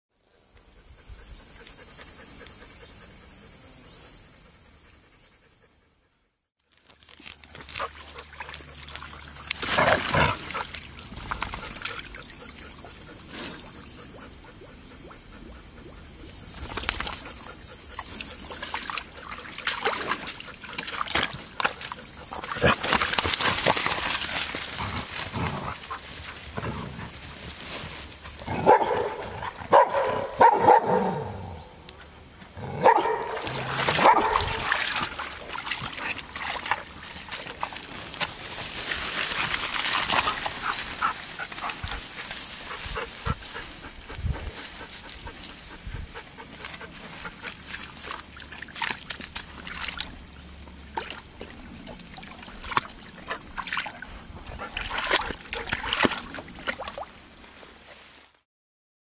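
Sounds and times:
rustling undergrowth: 6.6s - 12.7s, 16.4s - 29.8s, 31.9s - 58.4s
dog barking and whining: 28.6s - 31.6s, 32.7s - 33.4s, 34.0s - 34.6s.

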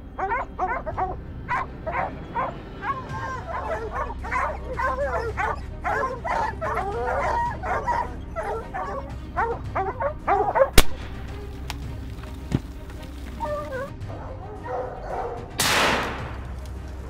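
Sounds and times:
dogs barking and yipping: 0.0s - 17.0s
sharp bang: 15.6s - 16.6s.

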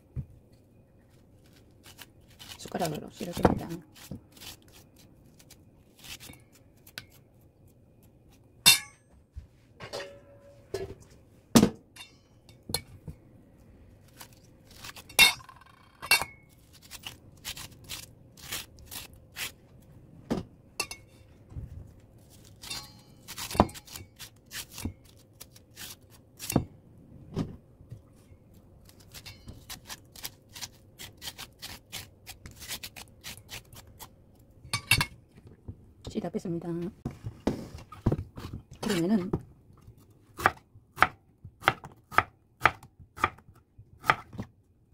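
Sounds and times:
scraping cucumber seeds: 16.6s - 19.6s.

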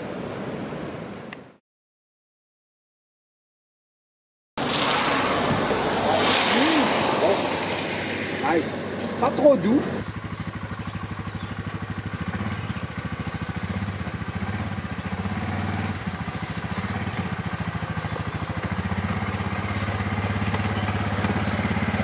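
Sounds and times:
quad bike engine running: 9.0s - 22.0s.

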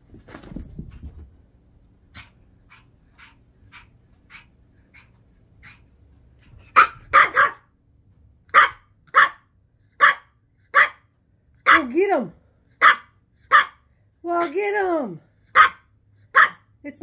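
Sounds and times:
puppy barking: 6.7s - 7.7s, 8.5s - 11.1s, 11.7s - 12.0s, 12.8s - 13.8s, 15.5s - 16.7s.

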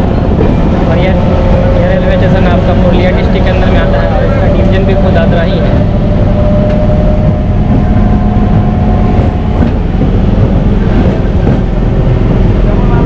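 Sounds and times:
train rumble: 0.0s - 13.0s
faint whine: 0.1s - 9.4s.

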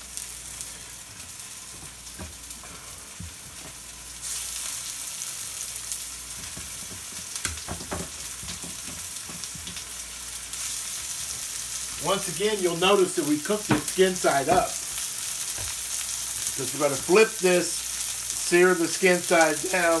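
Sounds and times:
fish sizzling in hot oil: 0.0s - 20.0s.

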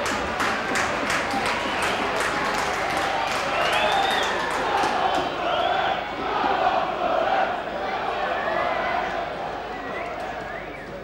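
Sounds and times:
hand clapping: 0.0s - 5.3s
crowd voices: 0.0s - 11.0s.

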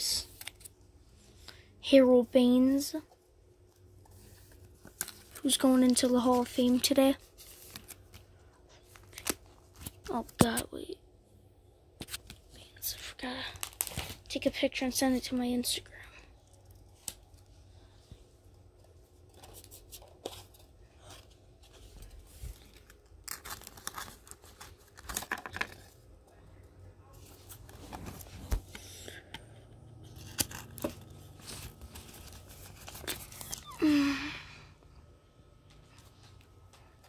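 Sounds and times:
plastic card pages rustling: 0.2s - 0.8s, 3.8s - 10.7s, 12.0s - 14.5s, 18.6s - 26.1s, 27.1s - 33.8s.

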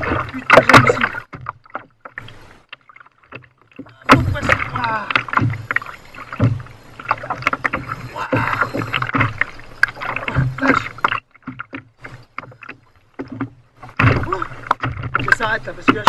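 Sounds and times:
water splashing at hull: 0.0s - 16.0s
tackle knocking against kayak: 10.2s - 16.0s.

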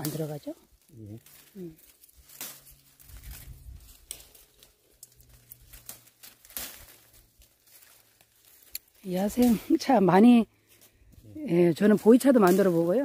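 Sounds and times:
leaves snapping as plucked: 1.3s - 9.7s.

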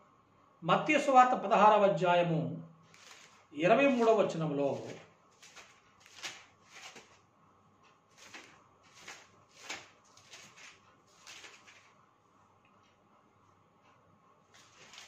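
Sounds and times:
paper pages rustling: 2.9s - 7.2s, 8.1s - 12.0s, 14.5s - 15.0s.

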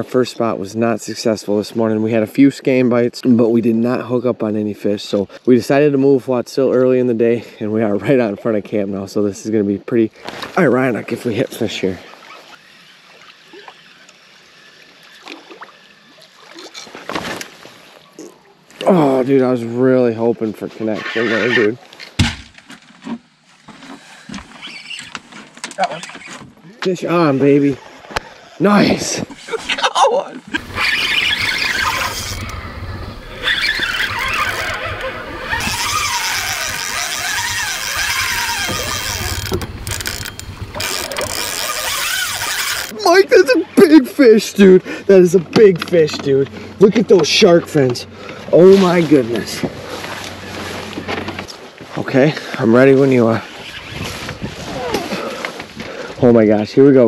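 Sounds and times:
water lapping around boat: 10.1s - 19.1s, 30.4s - 43.0s, 44.6s - 56.2s
fishing reel whirring and clicking: 12.2s - 16.3s, 30.6s - 43.0s.

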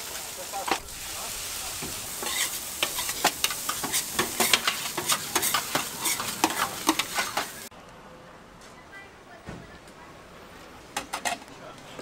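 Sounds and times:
rice sizzling on a griddle: 0.0s - 7.7s
metal spatulas clacking and scraping: 2.2s - 7.6s.

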